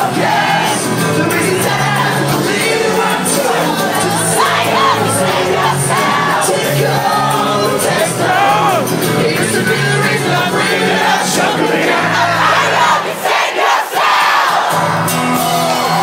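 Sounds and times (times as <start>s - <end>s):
person singing: 0.0s - 12.5s
live band playing: 0.0s - 13.1s, 14.1s - 16.0s
crowd voices: 0.0s - 16.0s.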